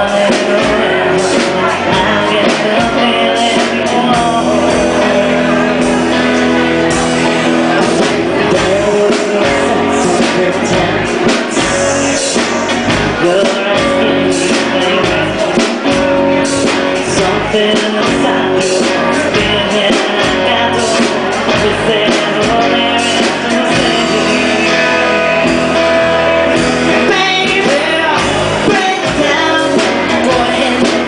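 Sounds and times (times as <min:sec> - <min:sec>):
rock band playing: 0:00.0 - 0:31.0
woman singing lead: 0:00.0 - 0:31.0.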